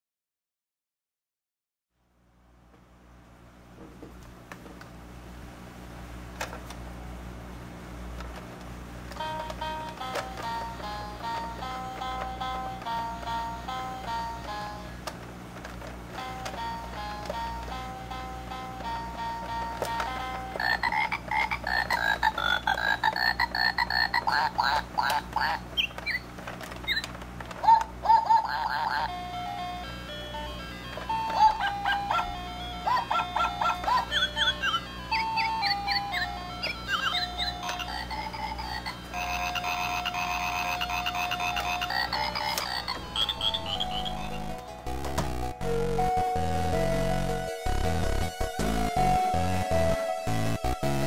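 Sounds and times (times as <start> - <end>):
toy piano held tone: 9.2 - 15.0, 16.1 - 51.0
electronic animal call effect: 20.5 - 26.2, 27.6 - 29.1, 31.3 - 44.6
synthesized frog croaks and chirps: 20.5 - 26.3, 27.7 - 29.1, 32.9 - 44.5
beeping electronic jingle: 34.1 - 37.6.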